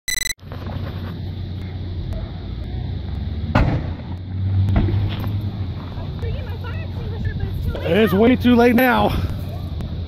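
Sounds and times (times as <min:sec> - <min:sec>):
fire low rumble: 0:00.4 - 0:10.0
sharp explosion bang: 0:03.5 - 0:04.0.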